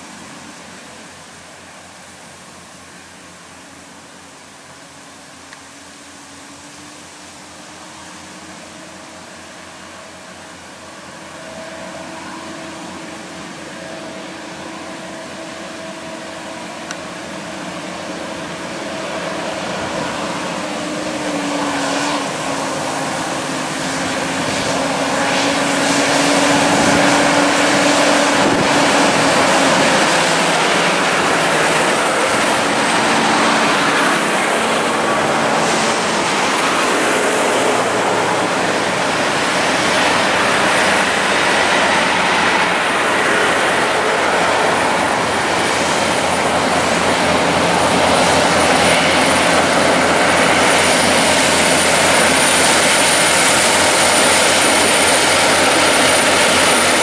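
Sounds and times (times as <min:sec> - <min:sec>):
diesel truck engines labouring: 0:00.0 - 0:57.0
wind noise on microphone: 0:11.0 - 0:57.0.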